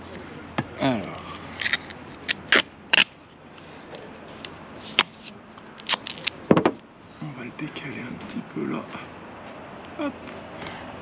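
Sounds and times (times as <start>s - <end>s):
duct tape ripping off roll: 1.1s - 3.2s, 4.9s - 6.4s.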